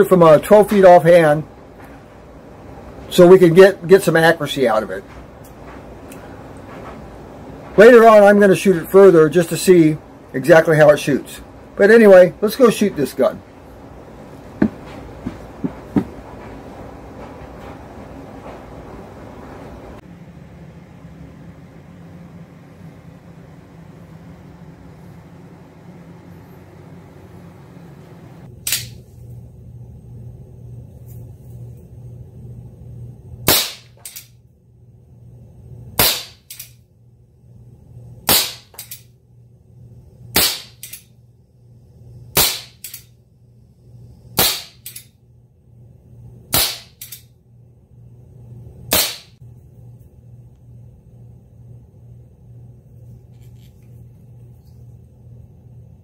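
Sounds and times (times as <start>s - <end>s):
loud air pistol shots: 33.5s - 34.2s, 36.0s - 36.7s, 38.3s - 39.0s, 40.4s - 41.0s, 42.4s - 43.0s, 44.4s - 45.0s, 46.5s - 47.2s, 48.9s - 49.4s.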